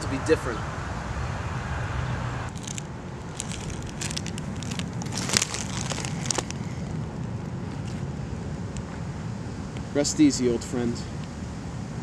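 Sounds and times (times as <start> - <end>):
low wind rumble: 0.0 - 12.0
flowers crinkling and rustling: 2.5 - 8.0.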